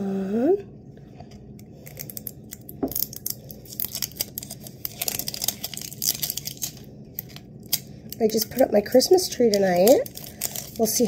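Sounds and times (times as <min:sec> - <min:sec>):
plastic shrink-wrap tearing: 0:01.8 - 0:11.0.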